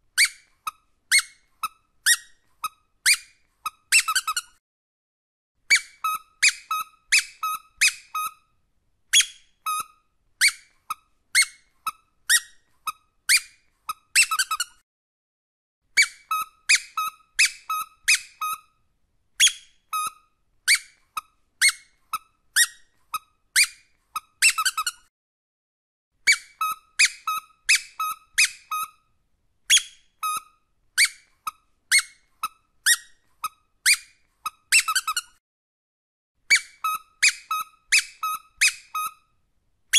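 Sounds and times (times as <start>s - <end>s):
squeaky rubber dog toy: 0.2s - 4.6s, 5.6s - 14.8s, 15.9s - 18.8s, 19.4s - 25.1s, 26.2s - 35.4s, 36.4s - 39.4s.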